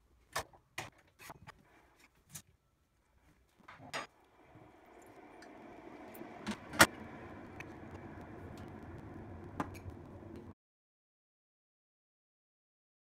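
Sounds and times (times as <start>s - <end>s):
coffee brewer running: 4.2s - 10.5s.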